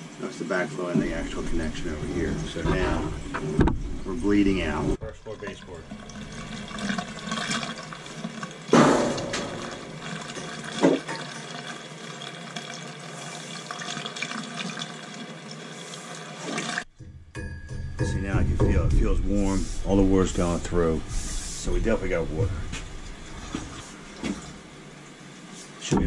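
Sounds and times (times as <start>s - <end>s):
water rushing from hose into sink: 4.0s - 16.9s.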